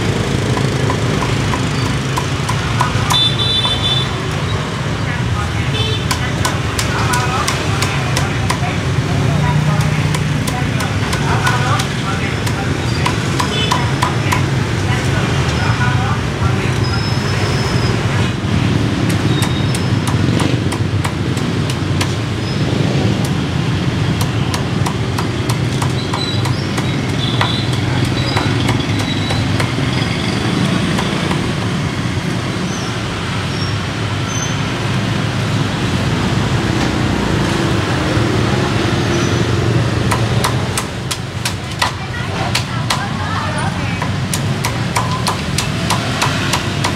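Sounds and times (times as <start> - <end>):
motorbike and street traffic: 0.0 - 46.9
cleaver chopping on wooden block: 0.5 - 3.9, 6.0 - 9.0, 9.6 - 14.5, 19.0 - 31.7, 40.0 - 43.2, 44.0 - 46.9.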